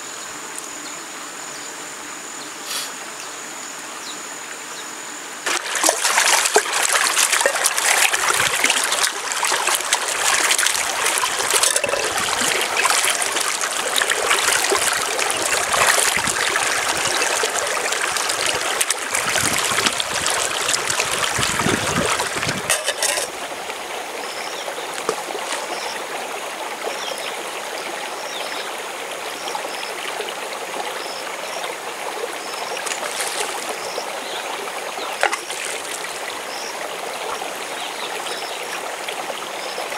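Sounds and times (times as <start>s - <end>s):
stream running: 0.0s - 39.9s
pot splashing in water: 5.5s - 23.4s, 32.8s - 33.7s, 35.2s - 36.0s.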